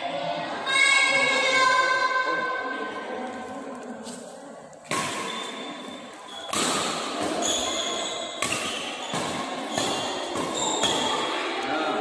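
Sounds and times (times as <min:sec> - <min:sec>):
racket hitting shuttlecock: 0:04.8 - 0:11.5.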